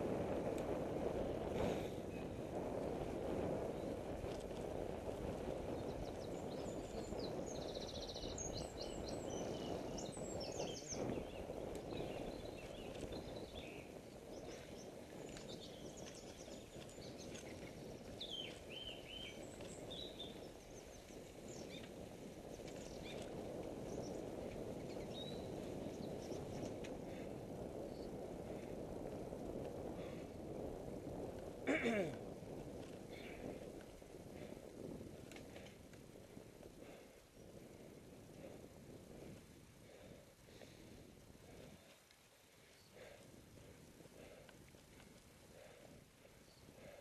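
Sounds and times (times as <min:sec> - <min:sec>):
wind and road noise rumble: 0:00.0 - 0:47.0
songbirds chirping and trilling: 0:05.3 - 0:27.3.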